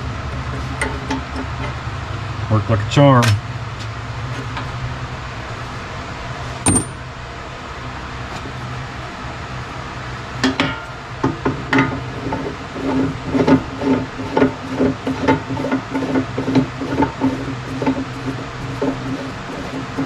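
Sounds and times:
lathe motor humming: 12.1 - 20.0.

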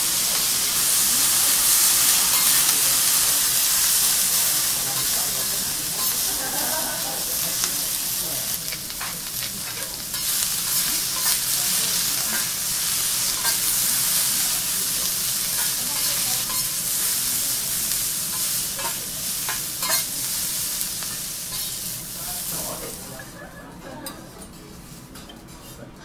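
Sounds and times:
vegetables sizzling on a griddle: 0.0 - 25.2
metal spatulas scraping a griddle: 4.2 - 7.7, 8.7 - 14.5, 15.4 - 16.8, 18.3 - 20.4, 21.0 - 22.9.

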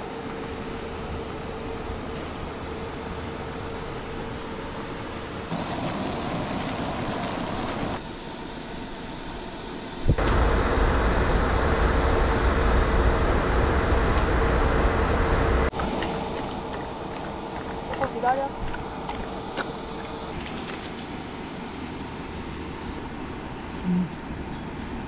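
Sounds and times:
electric fan humming: 0.0 - 23.4
air blowing across microphone: 10.0 - 16.4.

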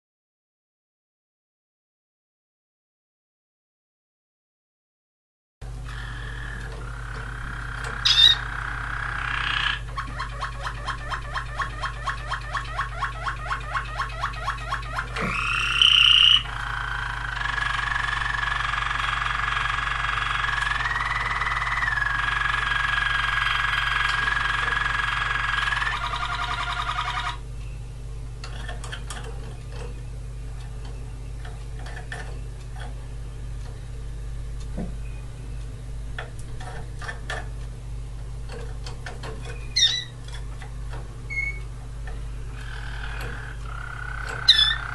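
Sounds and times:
steady low hum: 5.6 - 44.9
canary singing: 5.9 - 27.4, 39.4 - 40.4, 41.2 - 44.9.

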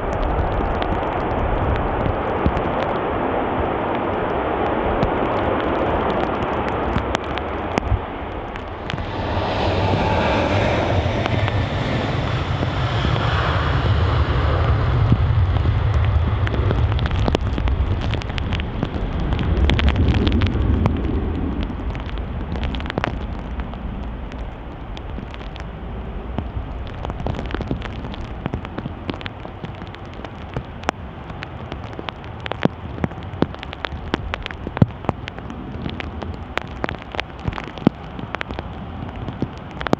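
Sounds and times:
raindrops ticking: 0.0 - 13.5, 14.6 - 39.9
jet engines roaring on takeoff: 0.2 - 30.4
deep rumble: 4.8 - 37.8
high engine whine sliding down: 8.7 - 15.7.

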